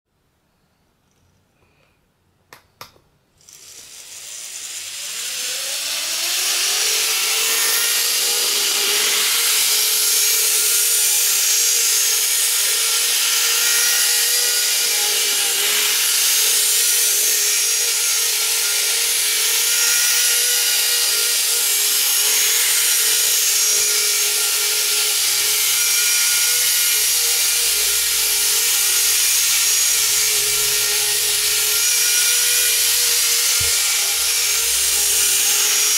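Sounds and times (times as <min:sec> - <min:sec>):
model train motors whining: 0:03.4 - 0:35.9.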